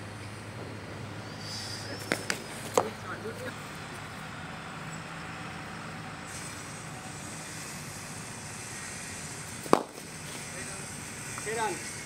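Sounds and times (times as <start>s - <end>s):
even hiss: 1.2s - 2.2s, 6.2s - 12.0s.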